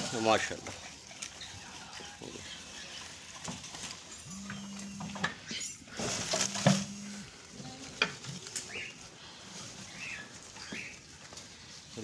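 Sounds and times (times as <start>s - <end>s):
goats chewing leaves: 0.0s - 12.0s.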